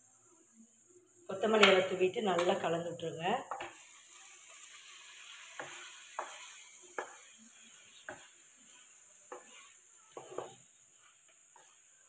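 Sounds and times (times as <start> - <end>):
spatula stirring thick gravy: 3.5 - 12.0.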